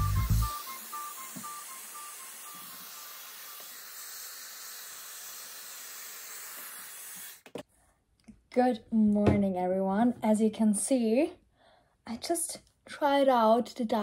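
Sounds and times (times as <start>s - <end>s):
hair styler blowing air: 0.0s - 7.6s.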